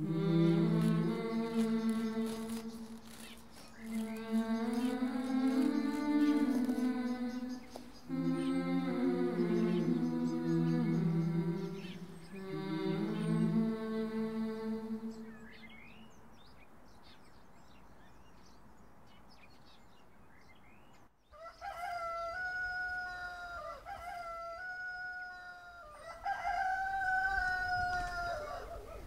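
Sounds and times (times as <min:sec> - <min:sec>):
faint bird chirps: 0:00.0 - 0:08.6
rooster crowing: 0:21.3 - 0:29.0.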